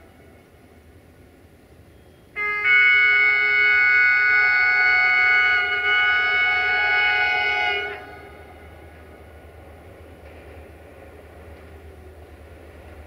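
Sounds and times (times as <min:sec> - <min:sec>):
locomotive air horn blast: 0:02.4 - 0:08.9.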